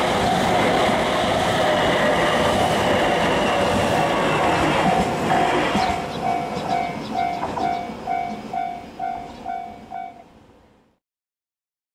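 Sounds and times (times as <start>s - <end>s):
electric train rumble: 0.0s - 10.9s
level crossing warning bell: 2.9s - 10.3s.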